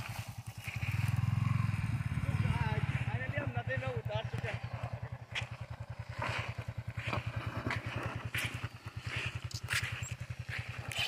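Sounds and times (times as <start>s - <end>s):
motorcycle engine idling: 0.0s - 11.0s
light clicks and scuffs: 8.4s - 11.0s.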